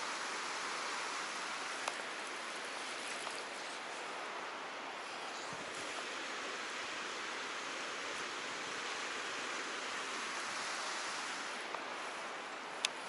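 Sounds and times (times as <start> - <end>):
stream water rushing over rocks: 0.0 - 13.0.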